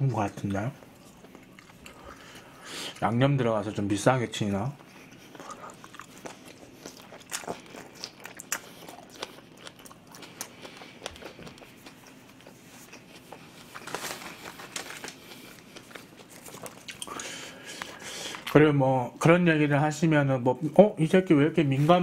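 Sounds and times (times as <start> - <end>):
wet chewing of food: 0.4 - 3.1, 4.8 - 18.6
plastic rustling: 12.8 - 16.9.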